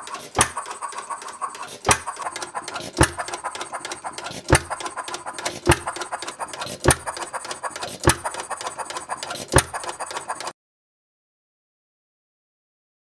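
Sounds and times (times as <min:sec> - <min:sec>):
light rapid mechanism clicking: 0:00.0 - 0:10.5
engine firing with sharp pops: 0:00.1 - 0:07.2, 0:07.9 - 0:10.0.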